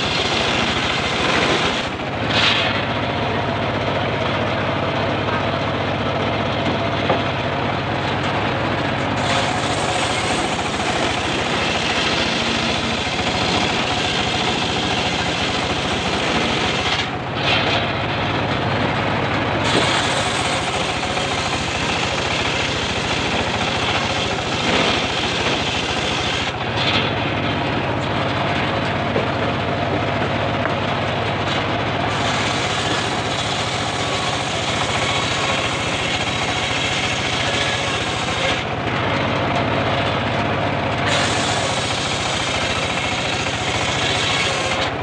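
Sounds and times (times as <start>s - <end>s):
saw blade cutting wood: 0.0s - 2.9s, 9.0s - 18.0s, 19.6s - 27.3s, 31.5s - 38.7s, 41.0s - 45.0s
engine hum: 0.0s - 45.0s.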